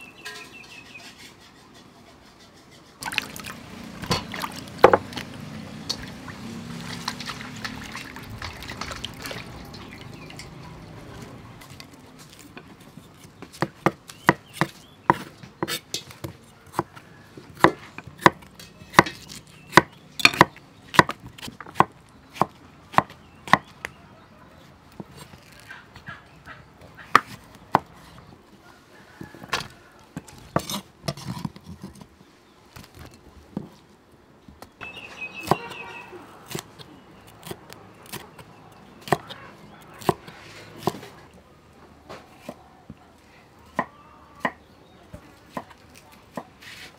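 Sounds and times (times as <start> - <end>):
cleaver chopping on wooden board: 17.6 - 23.7.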